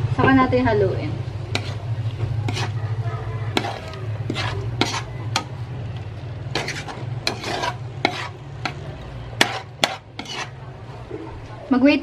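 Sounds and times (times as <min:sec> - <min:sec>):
food sizzling in pan: 0:01.2 - 0:10.6
spoon scraping frying pan: 0:01.4 - 0:10.7.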